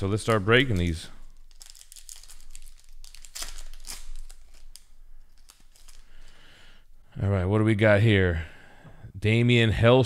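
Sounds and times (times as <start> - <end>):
card pack wrapper tearing and crinkling: 0.0 - 6.3.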